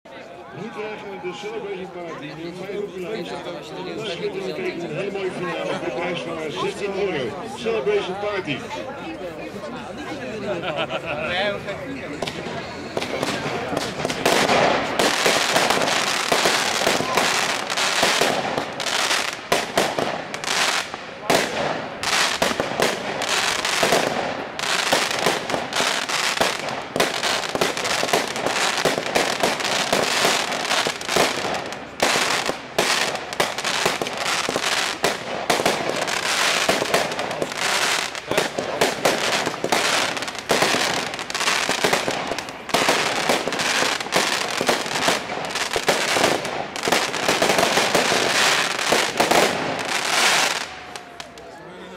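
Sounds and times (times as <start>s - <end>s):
fireworks crackling and popping: 11.8s - 51.6s.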